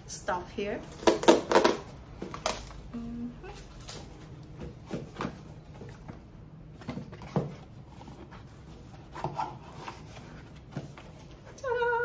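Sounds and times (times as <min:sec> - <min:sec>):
cardboard box and paper rustling: 0:03.6 - 0:12.0.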